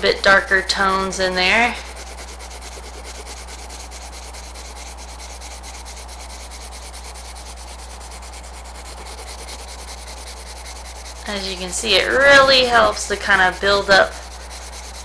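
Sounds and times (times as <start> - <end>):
pencil scratching on paper: 0.0 - 15.0.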